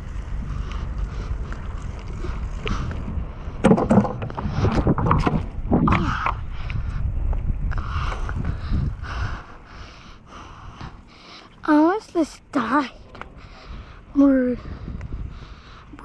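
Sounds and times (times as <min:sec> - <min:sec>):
tyres rolling on asphalt: 0:00.0 - 0:08.6
wind on microphone: 0:00.0 - 0:11.0, 0:13.2 - 0:16.0.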